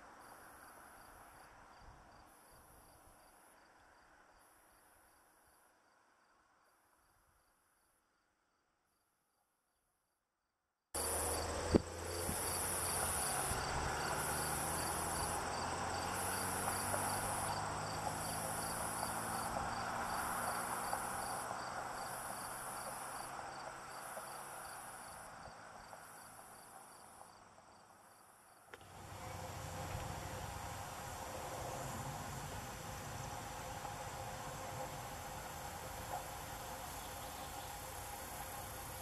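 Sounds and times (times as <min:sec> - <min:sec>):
insects buzzing: 0:11.0 - 0:27.8, 0:28.5 - 0:39.0
background hiss: 0:11.0 - 0:39.0.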